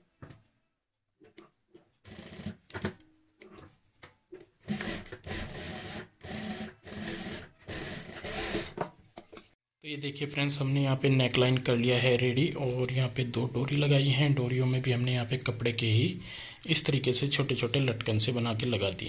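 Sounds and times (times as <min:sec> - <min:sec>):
industrial sewing machine stitching: 0:04.7 - 0:08.8.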